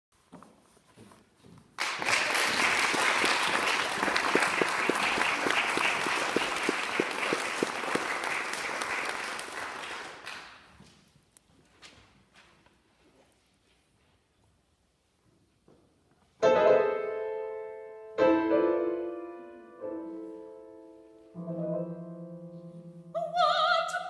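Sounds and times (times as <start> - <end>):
audience applauding: 1.8 - 10.7.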